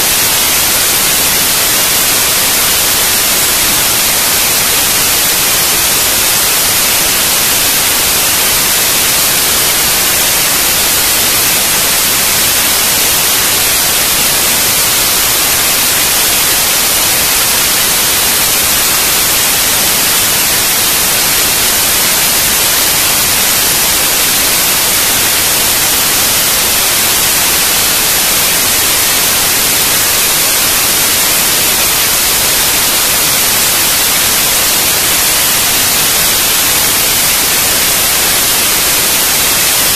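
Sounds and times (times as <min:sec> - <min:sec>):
white noise static hiss: 0:00.0 - 0:39.9.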